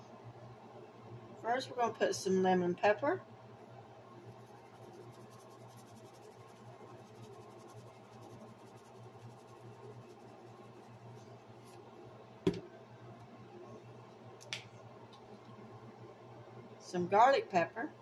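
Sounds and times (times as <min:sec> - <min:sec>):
steady low hum: 0:00.0 - 0:18.0
shaker ticking: 0:04.3 - 0:11.2
bottle knocking on countertop: 0:12.4 - 0:12.7.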